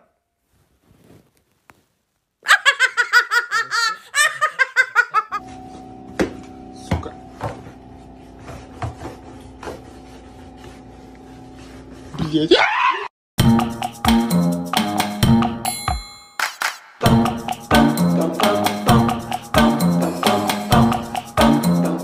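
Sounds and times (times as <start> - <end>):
person laughing hard: 2.4 - 5.4.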